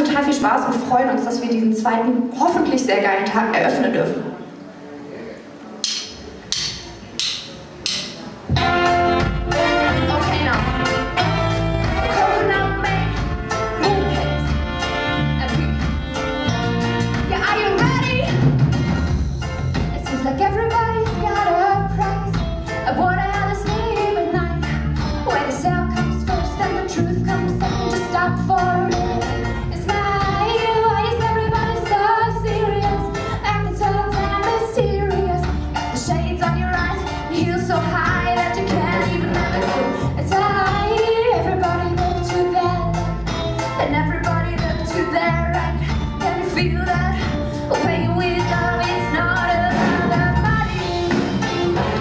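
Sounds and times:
live reggae band: 0:05.6 - 0:52.0
woman singing: 0:08.6 - 0:16.5, 0:20.0 - 0:51.1.

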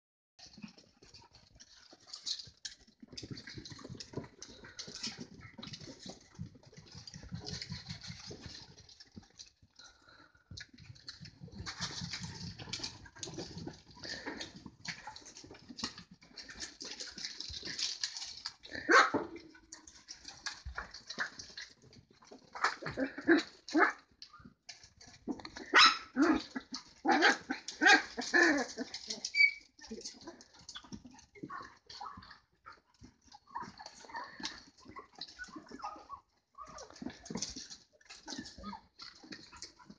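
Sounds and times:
puppies yipping and barking: 0:11.0 - 0:39.9.

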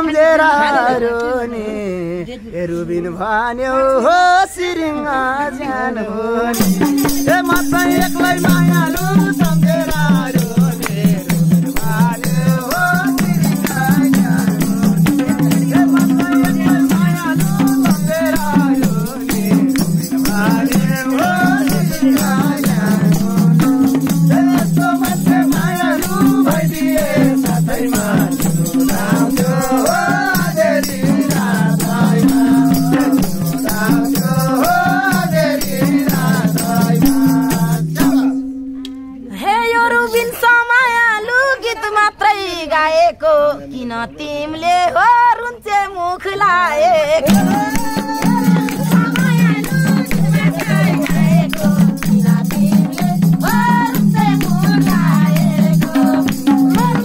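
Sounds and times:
person singing: 0:06.4 - 0:39.6, 0:46.3 - 0:57.0
hand drum drumming: 0:06.6 - 0:38.8, 0:47.3 - 0:57.0
rattling percussion beat: 0:06.6 - 0:38.8, 0:47.3 - 0:57.0.

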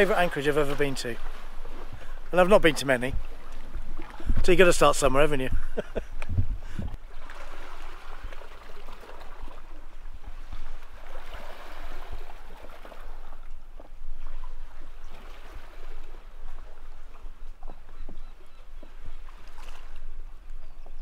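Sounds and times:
water lapping and trickling: 0:00.0 - 0:21.0.

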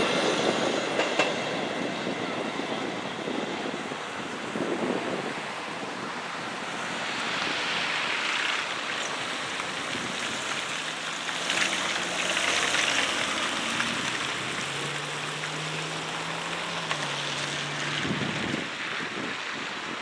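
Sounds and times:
tyres hissing on wet road: 0:00.0 - 0:20.0.

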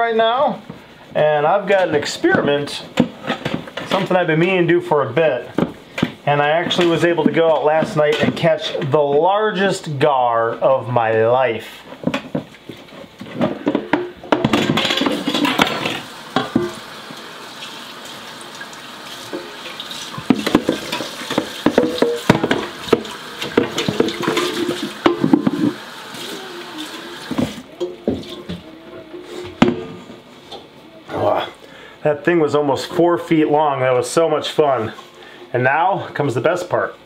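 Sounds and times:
tap running into a sink: 0:15.0 - 0:17.2, 0:18.5 - 0:28.6
pot being scrubbed: 0:19.0 - 0:28.6
metal knocking against sink: 0:20.2 - 0:25.8.

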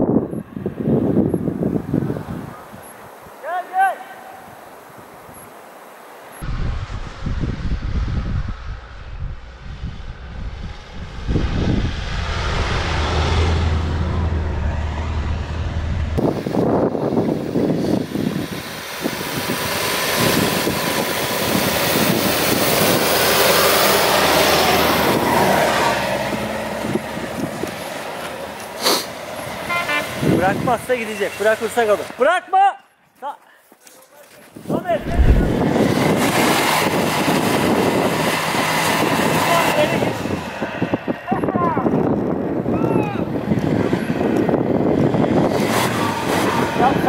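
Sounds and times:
loud even rush of noise: 0:04.4 - 0:21.5, 0:34.7 - 0:41.2.

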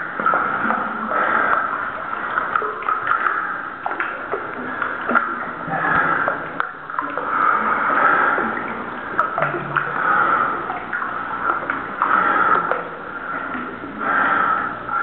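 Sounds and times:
small drip-like clicks: 0:00.0 - 0:15.0
water sloshing and dripping: 0:00.0 - 0:15.0
heavy breathing: 0:05.7 - 0:15.0.

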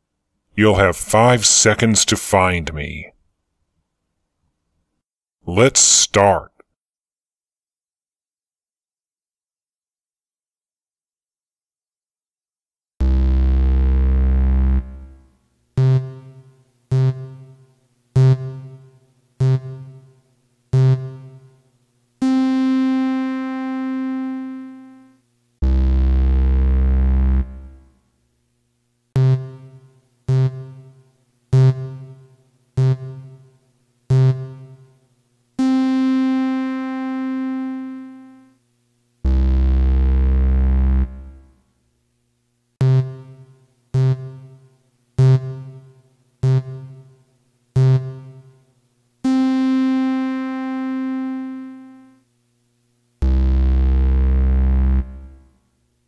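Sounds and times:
long held synth tone: 0:35.6 - 0:38.6, 0:49.3 - 0:52.2.

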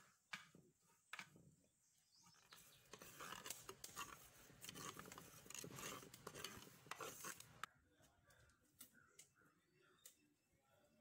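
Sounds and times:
ladle scraping coconut in pot: 0:02.4 - 0:07.7.

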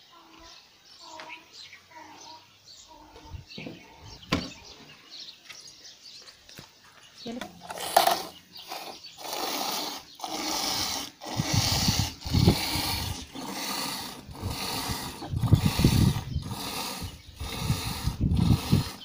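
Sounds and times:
milk squirting into pail: 0:07.7 - 0:19.0.

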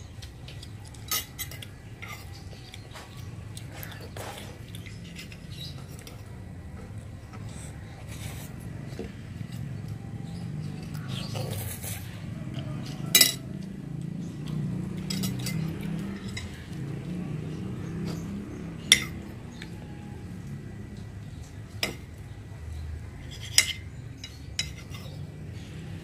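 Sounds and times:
metal spoon scraping a glass plate: 0:23.2 - 0:25.3.

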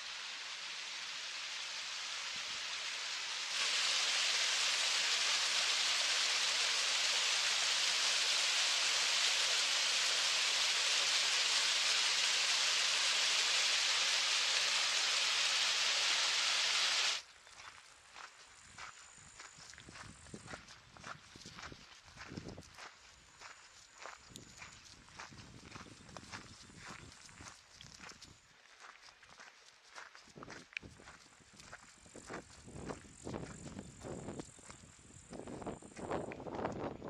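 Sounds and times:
stream rushing over rocks: 0:00.0 - 0:17.2.

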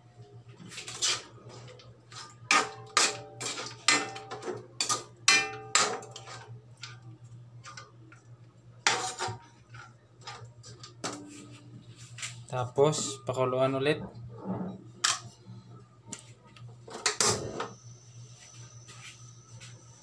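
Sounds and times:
utensils scraping metal wok: 0:08.9 - 0:09.3.

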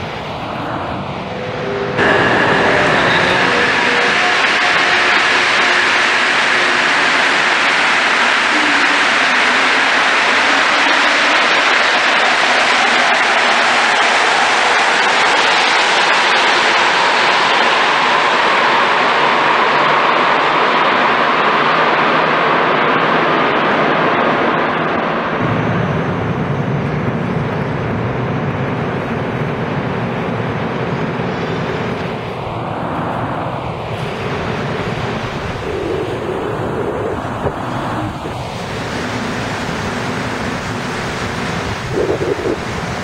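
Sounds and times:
steady low rumble: 0:00.0 - 0:08.5, 0:25.3 - 0:43.0
metro train rushing: 0:00.0 - 0:43.0.

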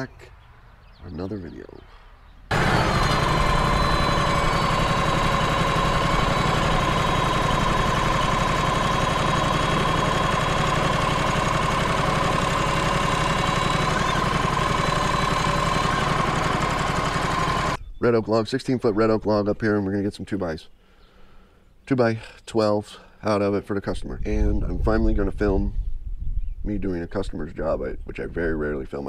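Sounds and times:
hydraulic loader lifting log: 0:02.5 - 0:17.8
sawmill engine running: 0:02.5 - 0:17.8
steady whine: 0:02.5 - 0:17.8.

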